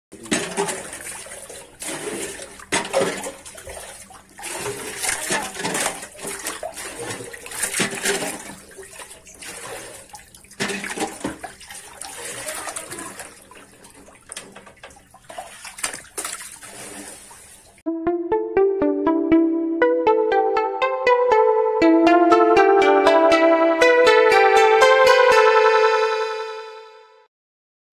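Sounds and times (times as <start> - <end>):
water splashing from thrashing fish: 0.2 - 17.8
music: 17.9 - 27.3.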